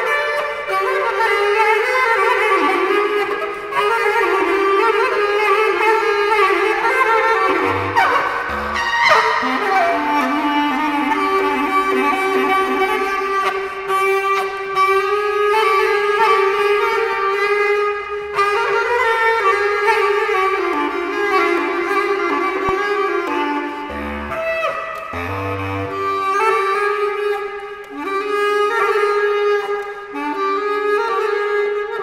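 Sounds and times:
bass clarinet playing solo: 0:07.5 - 0:10.5.

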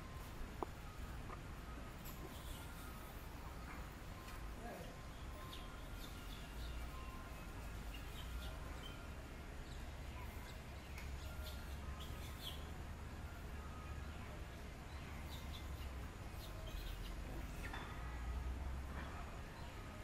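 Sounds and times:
high chirps and squeaks: 0:02.0 - 0:03.9.

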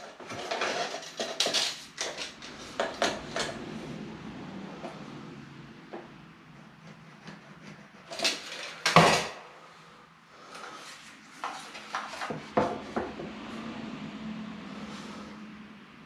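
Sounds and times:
hand tools clattering on floor: 0:00.0 - 0:03.6, 0:08.1 - 0:09.4.

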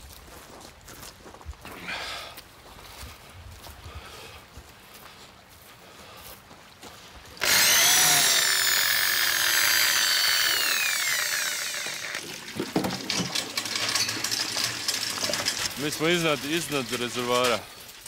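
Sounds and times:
power tool whining on wood: 0:07.4 - 0:15.8.

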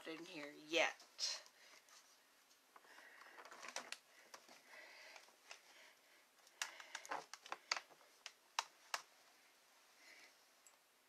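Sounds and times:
clicks and taps handling gear: 0:06.4 - 0:09.1.

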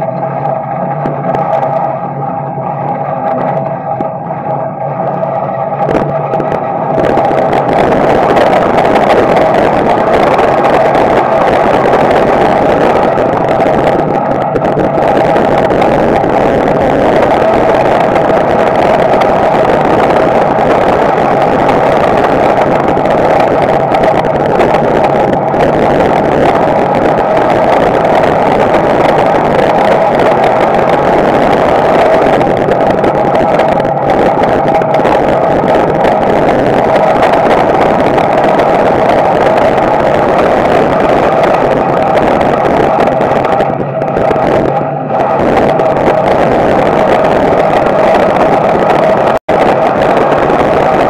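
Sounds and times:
race car engine running: 0:00.0 - 0:51.0.

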